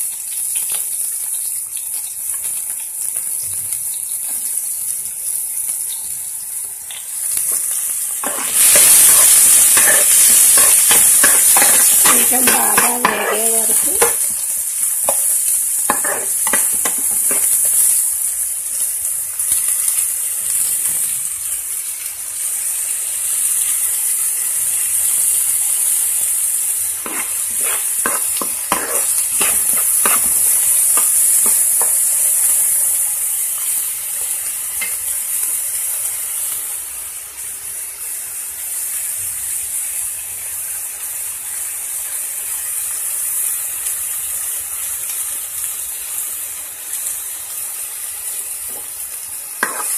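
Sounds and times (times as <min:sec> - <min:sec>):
onions sizzling in hot oil: 0:00.0 - 0:49.9
ladle scraping and clinking on pan: 0:27.0 - 0:30.4.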